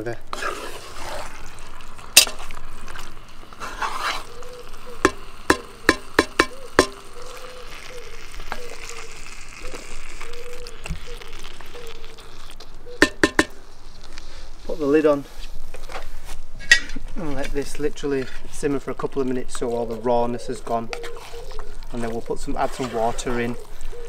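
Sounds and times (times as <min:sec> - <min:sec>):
meat sizzling in a pot: 0:00.0 - 0:14.4
wooden spatula scraping a pot: 0:00.3 - 0:24.0
sharp knocks against a pot: 0:05.0 - 0:07.0, 0:13.0 - 0:13.6.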